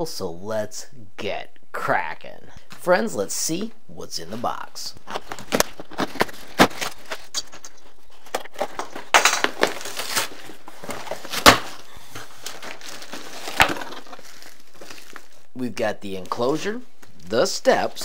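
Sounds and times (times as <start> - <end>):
cardboard cracks and scrapes: 5.1 - 15.3.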